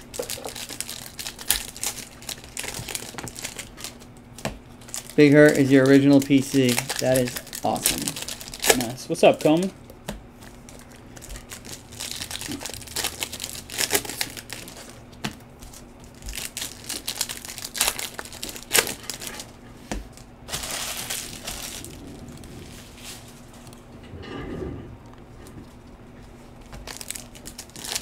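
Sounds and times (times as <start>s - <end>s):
wrappers crinkling: 0.0s - 9.7s, 10.4s - 23.8s, 25.6s - 28.0s
packs tearing open: 0.1s - 4.0s, 4.8s - 9.7s, 10.7s - 15.0s, 15.7s - 22.4s, 26.8s - 28.0s.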